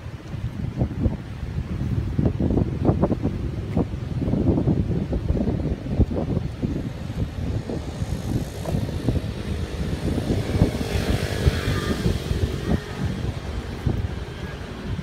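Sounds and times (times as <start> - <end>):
bright wind hiss: 0.0 - 15.0
wind buffeting microphone: 0.0 - 15.0.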